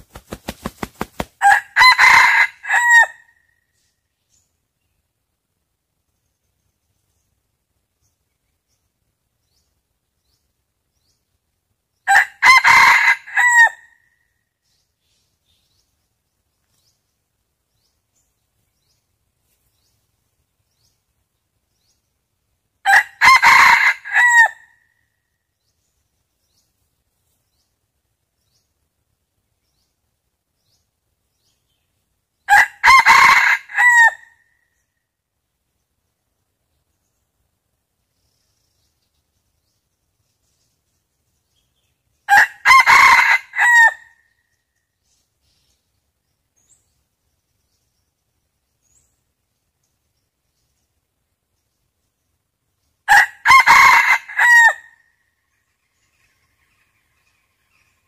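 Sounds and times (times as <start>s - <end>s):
rooster crowing: 1.4s - 3.3s, 12.1s - 13.9s, 22.9s - 24.6s, 32.5s - 34.3s, 42.3s - 44.0s, 53.1s - 54.9s.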